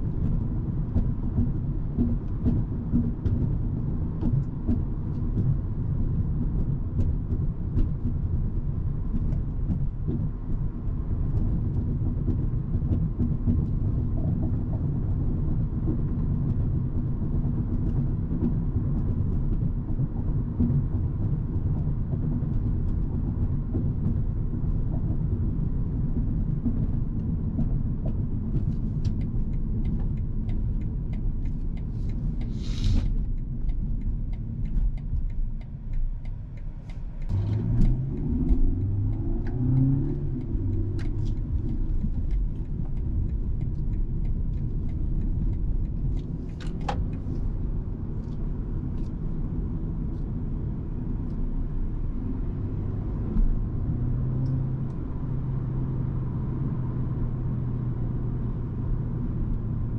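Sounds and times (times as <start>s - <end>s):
car engine accelerating: 0.0s - 59.9s
road and tyre rumble: 0.0s - 59.9s
brief hiss: 32.5s - 33.1s.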